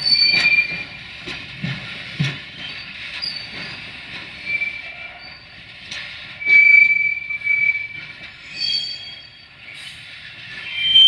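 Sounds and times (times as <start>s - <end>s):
train wheels squealing: 0.0s - 1.0s, 2.6s - 5.7s, 6.3s - 11.0s
wheels clacking on rail joints: 0.0s - 9.2s
rumble of train: 0.0s - 11.0s.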